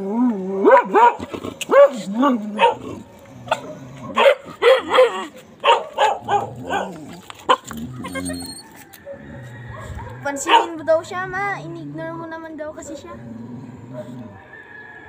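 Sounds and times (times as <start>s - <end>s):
dog whining and yipping: 4.6s - 10.8s.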